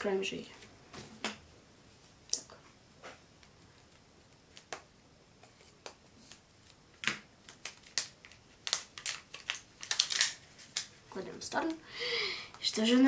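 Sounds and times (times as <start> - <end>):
plastic wrapper crackling: 6.6 - 11.8.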